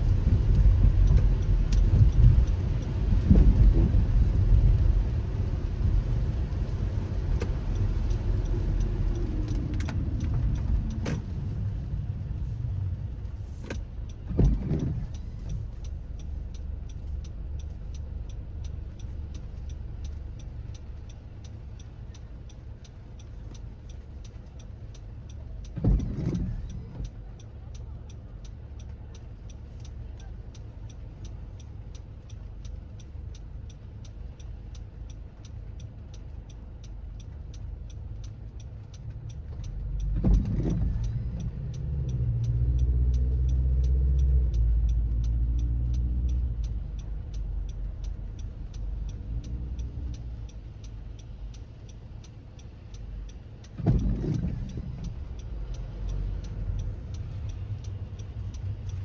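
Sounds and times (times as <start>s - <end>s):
car road noise on wet streets: 0.0s - 59.0s
fast regular ticking: 27.0s - 59.0s.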